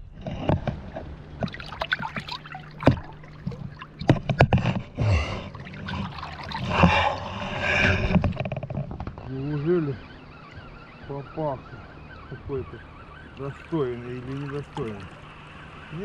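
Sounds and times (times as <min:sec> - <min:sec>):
water splashing and trickling: 0:00.8 - 0:09.0, 0:13.2 - 0:16.0.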